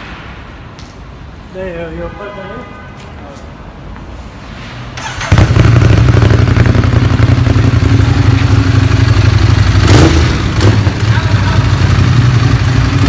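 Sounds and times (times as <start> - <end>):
motorcycle engine starting and idling: 5.0 - 13.0.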